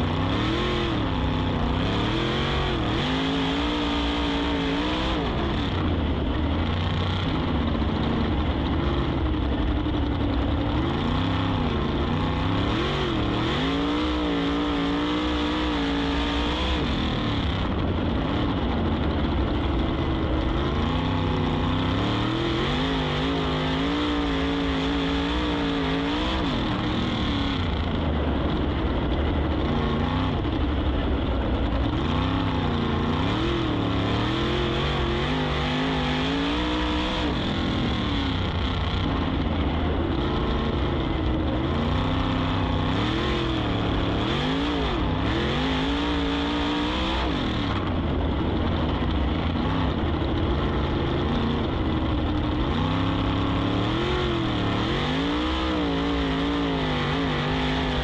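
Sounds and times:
race car engine revving: 0.0 - 58.0
wind rush on microphone: 27.4 - 33.8, 47.2 - 53.3.

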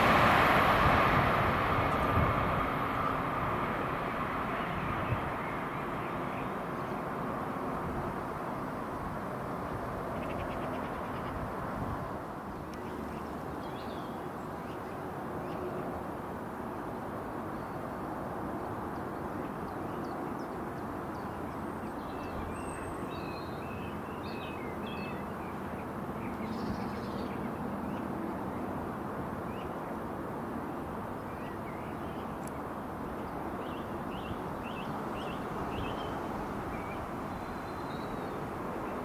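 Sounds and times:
outdoor background rumble: 0.0 - 14.2
small birds chirping: 31.3 - 39.0.

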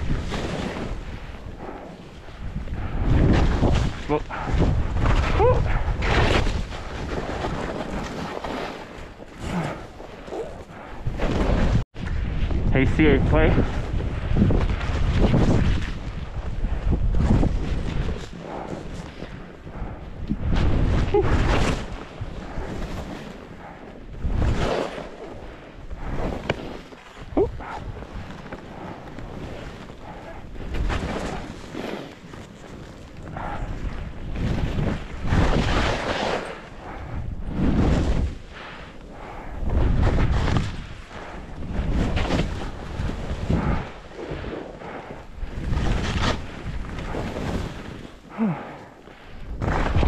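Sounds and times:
wind rushing over microphone: 0.0 - 9.7, 10.4 - 32.2, 33.1 - 48.6
skis scraping on snow: 0.1 - 1.9, 6.0 - 9.3, 24.3 - 27.2, 27.8 - 39.1, 39.8 - 48.2.

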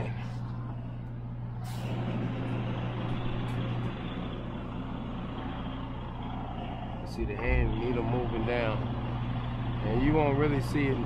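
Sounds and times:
diesel engine humming: 0.0 - 11.0
air brake hiss: 1.6 - 2.1.

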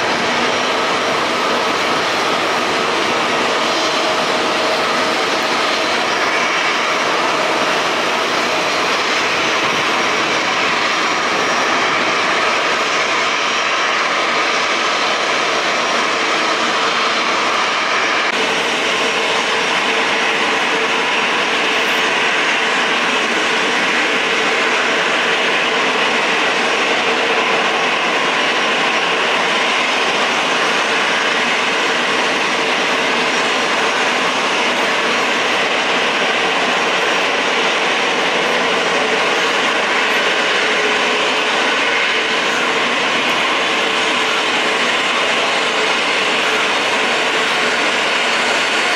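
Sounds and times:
constant engine whine: 0.0 - 48.9
jet engines roaring: 0.0 - 48.9.

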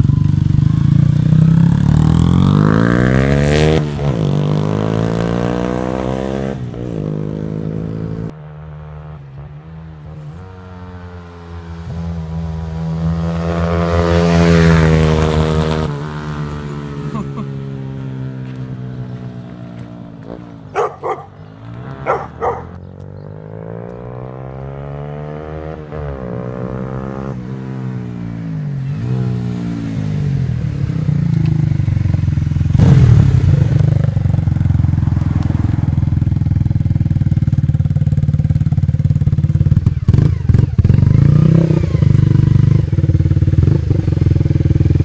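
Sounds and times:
motorcycle engine passing: 0.0 - 45.0.

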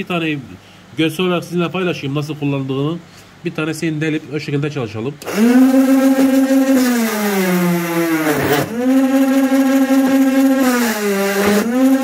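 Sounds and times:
drilling machine motor running: 5.2 - 12.0.

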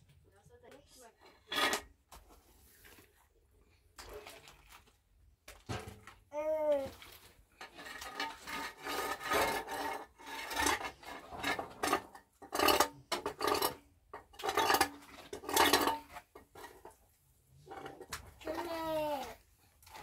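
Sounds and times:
trowel scraping plaster: 7.6 - 16.8.

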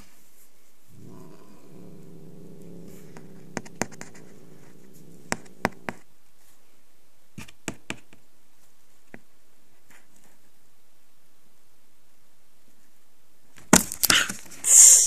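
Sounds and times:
cat growling low: 0.9 - 6.1.

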